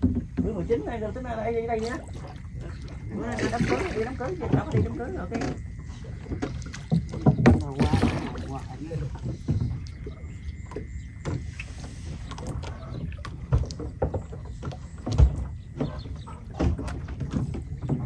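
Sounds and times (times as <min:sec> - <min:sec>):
knocks and thumps: 0:00.0 - 0:00.8, 0:03.5 - 0:11.6, 0:12.4 - 0:18.0
small boat moving through water: 0:00.0 - 0:18.0.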